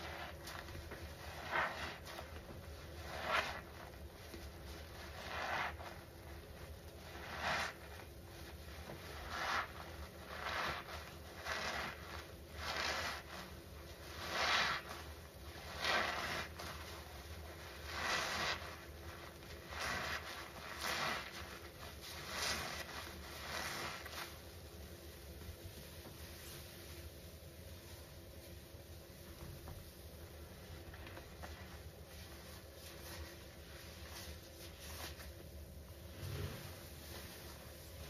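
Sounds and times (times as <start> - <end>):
wet sponges squelching: 0.0 - 24.5, 30.3 - 35.5.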